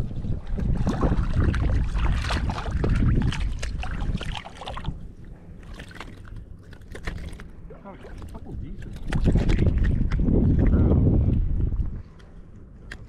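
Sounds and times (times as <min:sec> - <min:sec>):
wind buffeting microphone: 0:00.0 - 0:05.2, 0:07.6 - 0:13.0
water splashing: 0:00.4 - 0:10.7.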